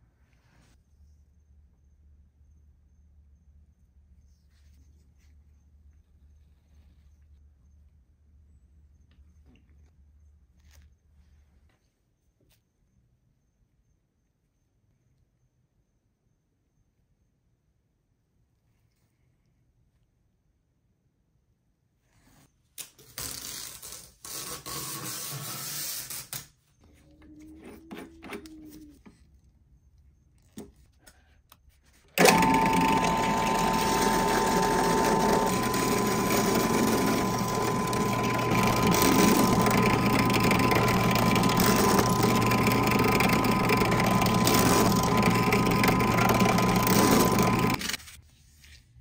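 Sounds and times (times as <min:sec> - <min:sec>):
drill press humming and whining: 0:32.2 - 0:48.0.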